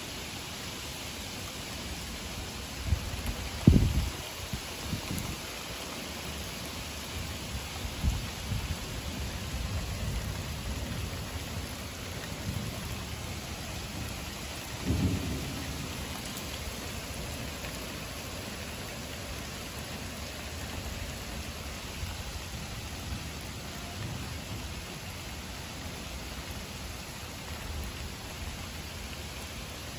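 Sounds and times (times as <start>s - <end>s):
heavy rain on pavement: 0.0s - 29.9s
thunder rumbling: 8.0s - 24.9s
thunder crack: 14.8s - 16.2s.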